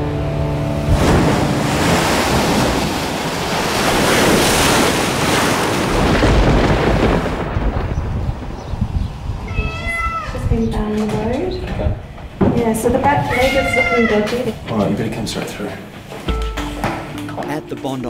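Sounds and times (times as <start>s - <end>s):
theme music: 0.0s - 2.6s, 16.3s - 18.0s
surf breaking over rocks: 0.9s - 8.6s
wind rumbling on microphone: 0.9s - 13.9s.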